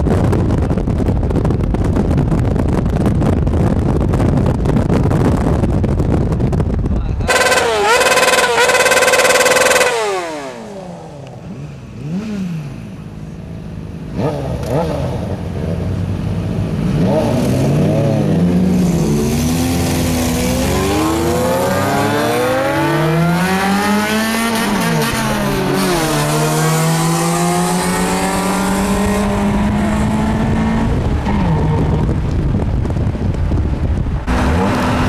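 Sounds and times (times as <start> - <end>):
vehicle engines revving: 7.1 - 35.0.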